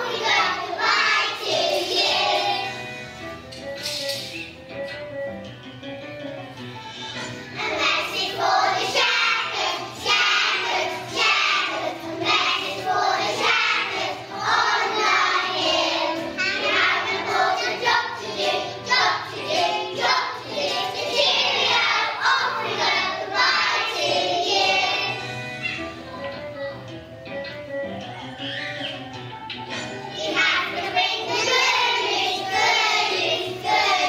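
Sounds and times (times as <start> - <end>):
children singing: 0.0 - 2.9, 7.6 - 25.8, 30.1 - 34.0
instrumental music: 0.0 - 34.0.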